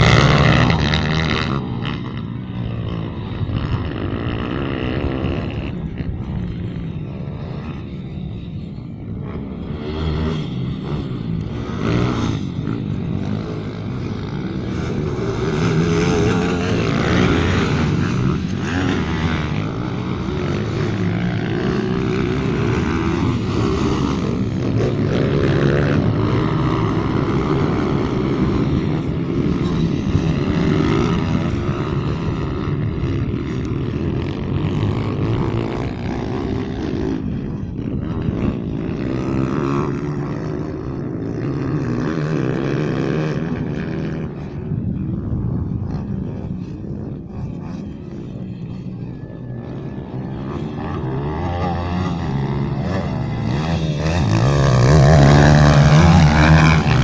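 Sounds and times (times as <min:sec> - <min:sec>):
pit bike engines revving: 0:00.0 - 0:57.0.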